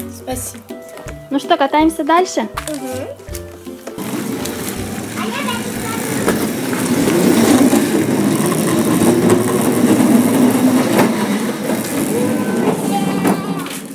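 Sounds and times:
vehicle motor running: 0:03.8 - 0:13.6.

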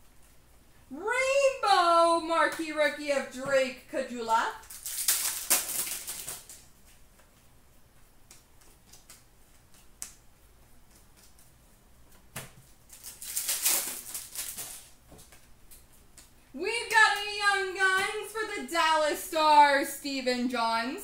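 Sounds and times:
plastic wrapper crinkling and tearing: 0:04.6 - 0:06.7, 0:12.8 - 0:15.0.

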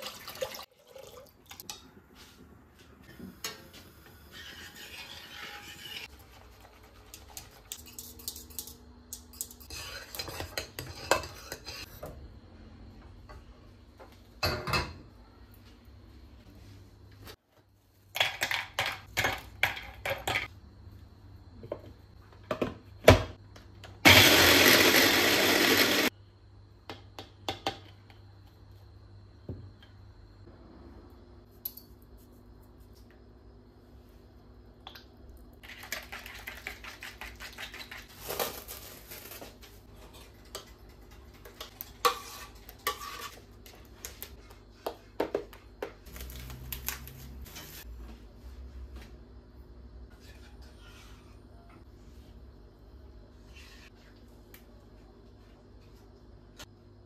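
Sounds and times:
kitchen clatter: 0:14.4 - 0:15.1, 0:35.6 - 0:43.8
electric food chopper running: 0:24.0 - 0:26.1.

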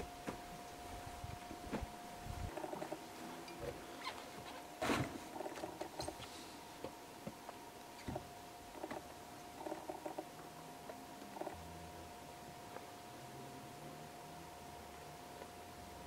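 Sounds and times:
faint steady whine: 0:00.0 - 0:16.0
tent fabric rustling: 0:02.4 - 0:06.2.

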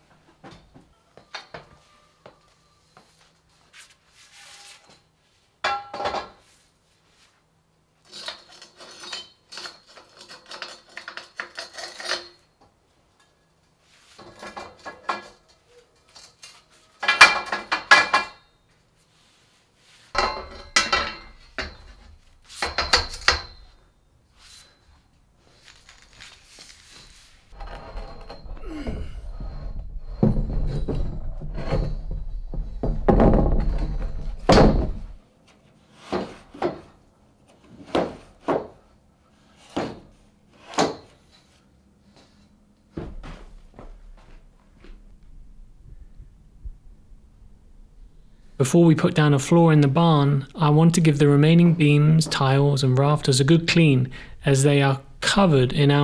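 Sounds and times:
steel scaffold clanking: 0:20.2 - 0:23.8, 0:25.6 - 0:35.2
low steady rumble: 0:45.0 - 0:48.6.

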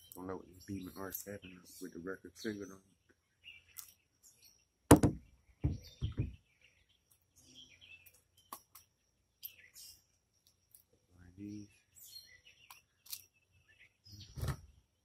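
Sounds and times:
rifle knocking on wooden rail: 0:04.9 - 0:06.4
small clicks of tin opening: 0:12.7 - 0:13.3.

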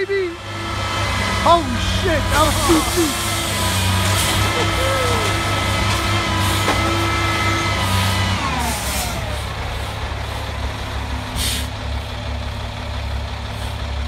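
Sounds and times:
diesel engine revving: 0:00.0 - 0:14.0
hydraulic hoist whine: 0:00.5 - 0:10.0
air hiss: 0:11.4 - 0:11.7.

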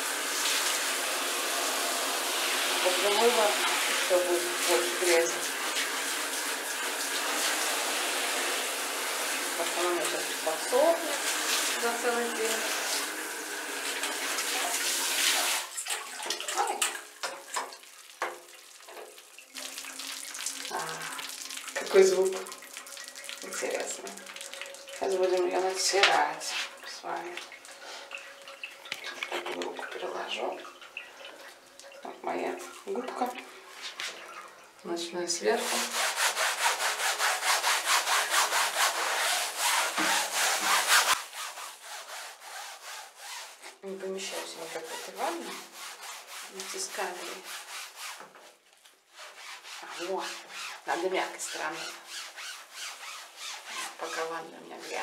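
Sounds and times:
running water: 0:00.0 - 0:55.0
shower spraying water on screen: 0:00.0 - 0:55.0
knocks and splashes: 0:15.3 - 0:31.4.

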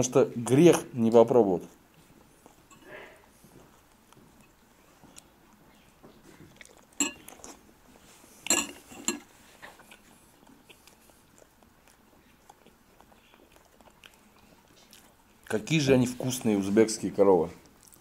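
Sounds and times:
cutlery clinking against dishes: 0:07.0 - 0:07.4, 0:08.4 - 0:09.3.

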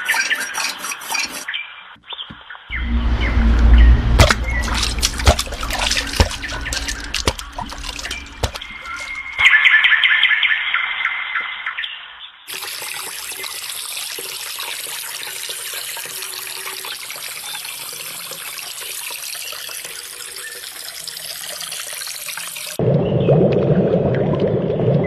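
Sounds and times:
water rushing over earth: 0:02.7 - 0:09.5.

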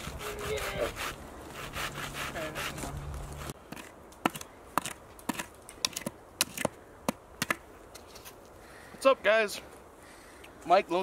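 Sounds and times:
hand saw cutting branch: 0:00.0 - 0:06.7
blade chopping into dirt: 0:03.7 - 0:07.6.

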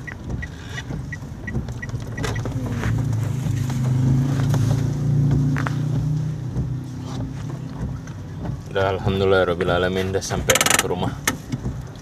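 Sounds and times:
car engine hum: 0:00.0 - 0:12.0
turn signal ticking: 0:00.0 - 0:12.0.

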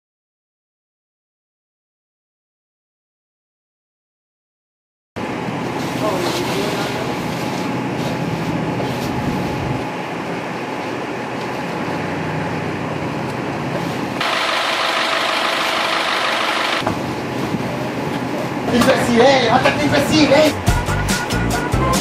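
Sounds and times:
truck engine idling: 0:11.9 - 0:18.1.

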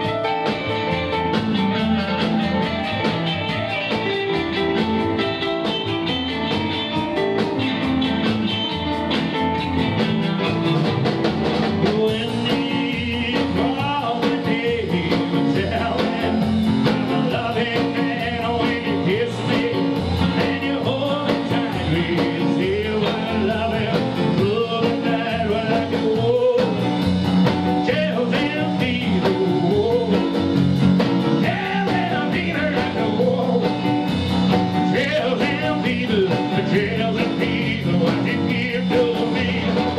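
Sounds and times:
rockabilly band playing: 0:00.0 - 0:39.9
man singing: 0:11.7 - 0:39.9.

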